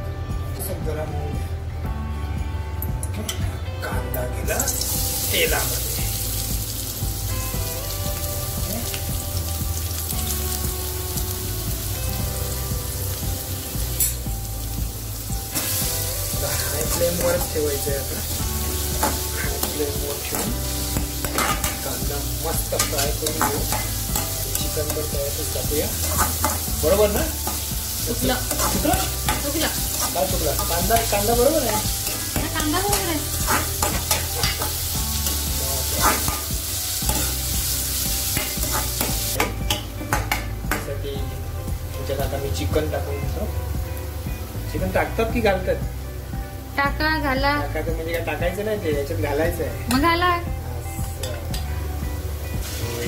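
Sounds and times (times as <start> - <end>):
onions sizzling in oil: 4.4 - 53.0
ladle scraping pan: 28.5 - 36.5.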